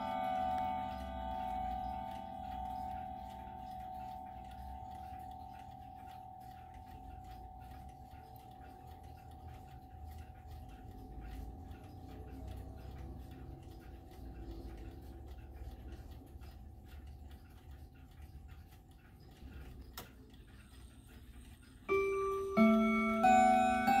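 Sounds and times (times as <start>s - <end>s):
clock chime rods ringing: 0.0s - 16.0s, 21.9s - 24.0s
clock ticking: 0.0s - 24.0s.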